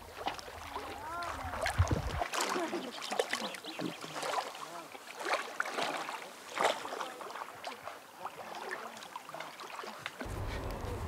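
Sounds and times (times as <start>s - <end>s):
water splashing around swimmer: 0.0s - 11.0s.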